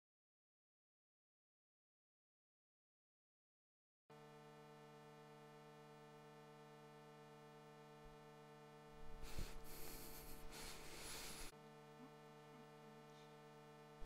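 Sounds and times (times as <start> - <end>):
steady buzzing hum: 4.1 - 14.0.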